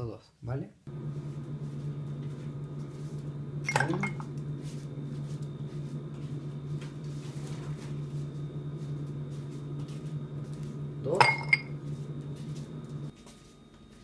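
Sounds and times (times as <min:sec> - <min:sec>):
steady low hum: 0:00.8 - 0:14.0
ice cube clinking in glass: 0:11.2 - 0:11.7.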